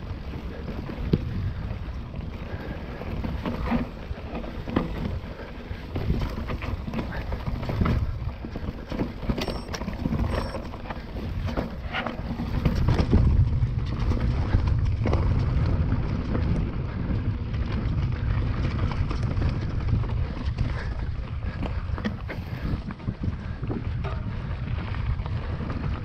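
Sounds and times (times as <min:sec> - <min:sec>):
bike tyre noise: 0:00.0 - 0:26.0
wind buffeting microphone: 0:00.0 - 0:26.0
bike clattering over rocks: 0:02.8 - 0:15.9.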